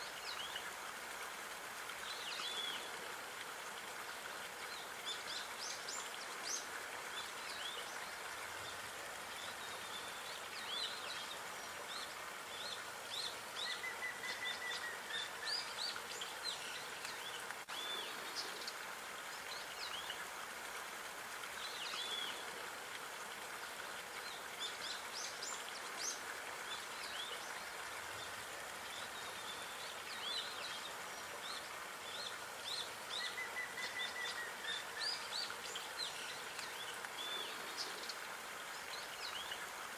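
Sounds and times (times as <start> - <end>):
running water hissing: 0.0 - 39.9
small birds chirping: 24.3 - 39.6.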